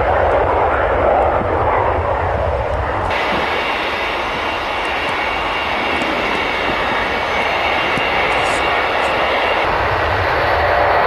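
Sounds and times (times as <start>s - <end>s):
jet engines running: 0.0s - 11.0s.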